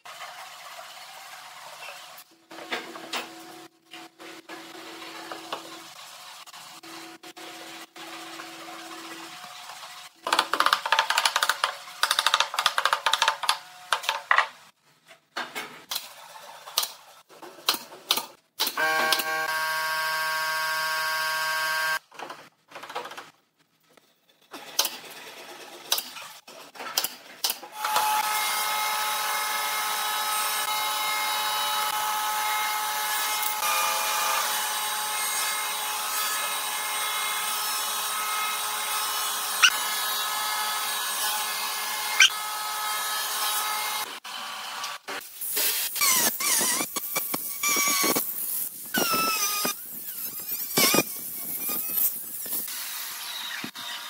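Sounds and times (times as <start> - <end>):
drill whirring: 38.6 - 43.4, 45.8 - 53.9.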